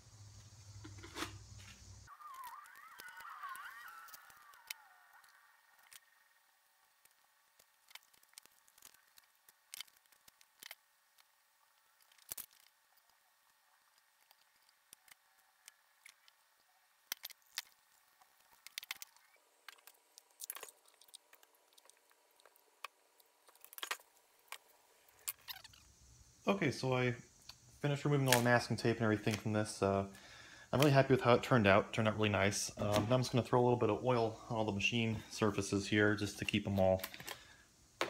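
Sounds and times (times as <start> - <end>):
masking tape peeling: 1.0 - 6.4.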